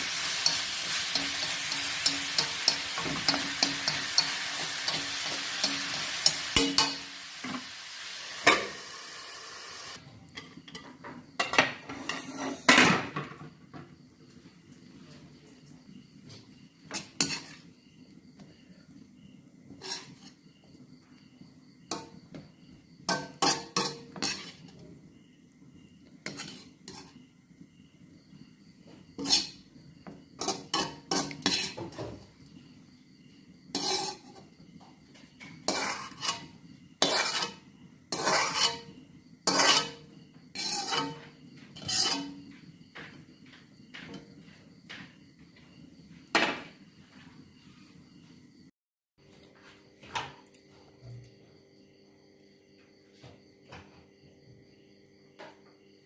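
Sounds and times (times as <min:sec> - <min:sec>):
metal spatula scraping a wok: 0:00.0 - 0:10.0, 0:11.8 - 0:12.8, 0:16.9 - 0:17.7, 0:19.7 - 0:20.4, 0:23.1 - 0:24.8, 0:26.2 - 0:27.2, 0:29.2 - 0:29.6, 0:30.4 - 0:32.1, 0:33.7 - 0:34.5, 0:35.4 - 0:42.5.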